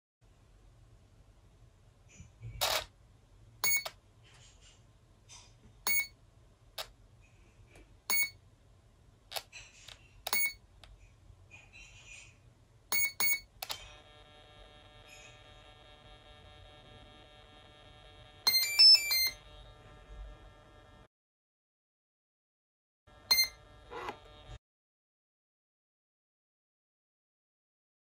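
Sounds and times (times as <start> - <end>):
motor controller beeps: 3.6 - 3.9, 5.9 - 6.1, 8.1 - 8.4, 10.3 - 10.6, 12.9 - 13.8, 17.9 - 19.8, 23.2 - 24.4.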